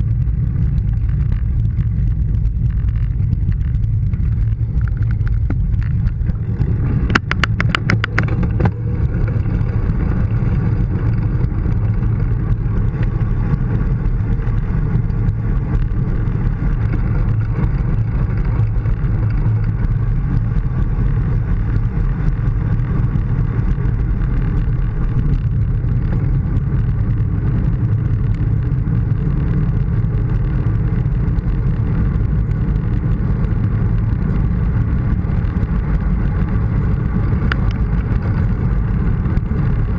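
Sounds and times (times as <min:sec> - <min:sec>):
bicycle rolling on asphalt: 0:00.0 - 0:39.9
wind rush: 0:00.0 - 0:39.9
quick run of clicks: 0:00.4 - 0:27.3.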